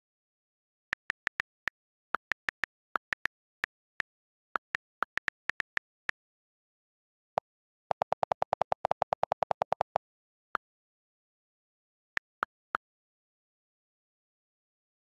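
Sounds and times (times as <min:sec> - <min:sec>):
on-screen keyboard clicks: 0:00.9 - 0:03.3, 0:04.6 - 0:05.9, 0:07.4 - 0:10.0.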